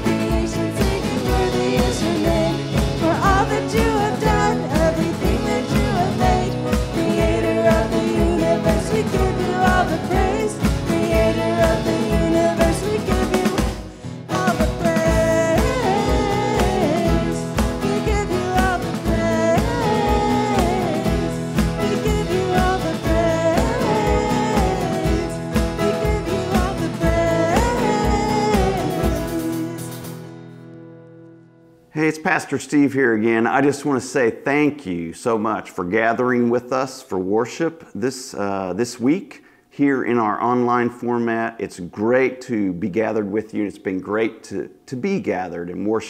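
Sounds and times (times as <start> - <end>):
band singing praise song: 0.0 - 30.2.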